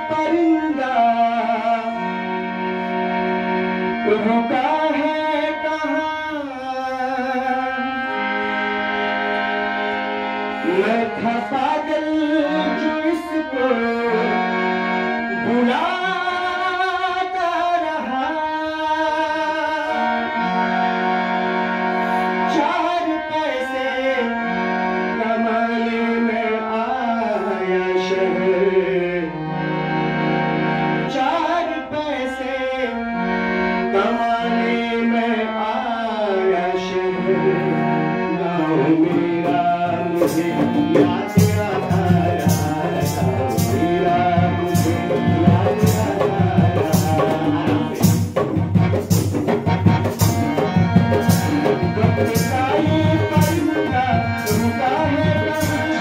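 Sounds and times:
harmonium music: 0:00.0 - 0:56.0
hand drums beat: 0:40.2 - 0:55.9.

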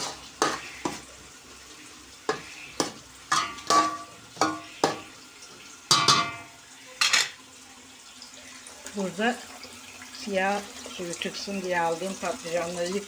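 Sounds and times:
spoon scraping metal pot: 0:00.0 - 0:01.1, 0:05.9 - 0:07.4.

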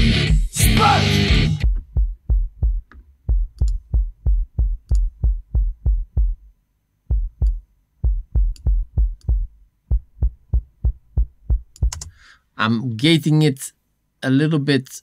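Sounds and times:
punchy kick drum thuds: 0:01.6 - 0:06.5, 0:07.1 - 0:12.0.

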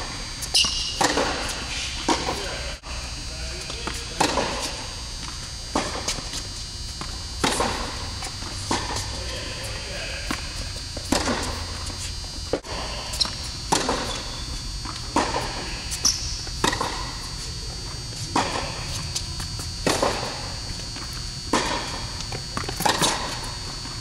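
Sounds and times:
steady high-pitched whine: 0:00.0 - 0:24.0
racket striking tennis ball: 0:00.5 - 0:02.4, 0:03.8 - 0:06.4, 0:07.0 - 0:09.5, 0:10.2 - 0:14.3, 0:14.9 - 0:17.2, 0:21.5 - 0:23.6
tennis ball bouncing: 0:00.5 - 0:02.4, 0:03.6 - 0:09.6, 0:10.2 - 0:17.3, 0:18.3 - 0:23.7.

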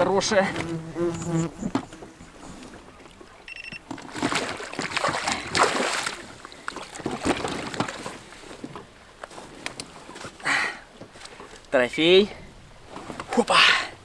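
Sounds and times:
water splashing against boat: 0:01.6 - 0:14.0
short high beep: 0:03.5 - 0:03.8.

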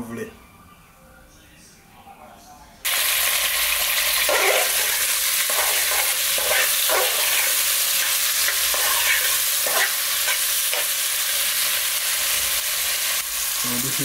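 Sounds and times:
vegetables sizzling in a pot: 0:02.8 - 0:14.0.

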